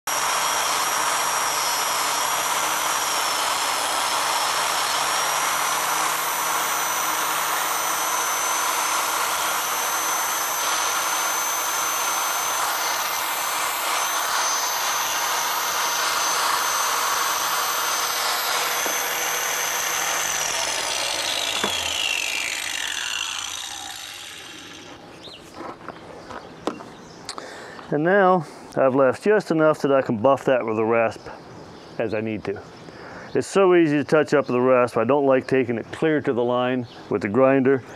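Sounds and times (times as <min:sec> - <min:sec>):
angle grinder whining: 0:00.0 - 0:25.9
grinder disc spinning down: 0:00.1 - 0:25.1.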